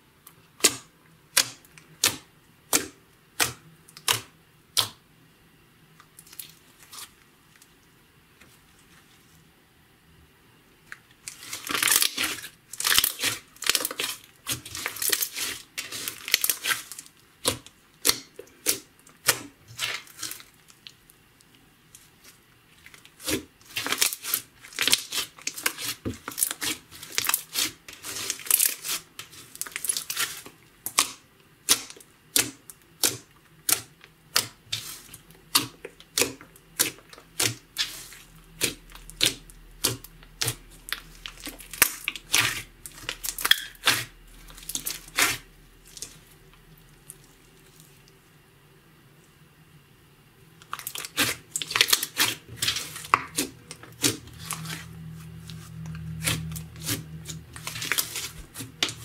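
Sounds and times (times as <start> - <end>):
slime crackling and popping: 11.2 - 21.0, 22.8 - 47.9, 50.6 - 59.0.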